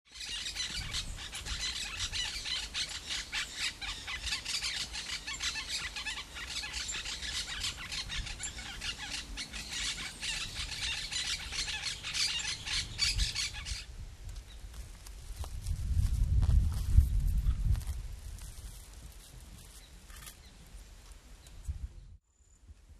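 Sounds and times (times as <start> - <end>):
flock of birds chirping: 0.1 - 14.7.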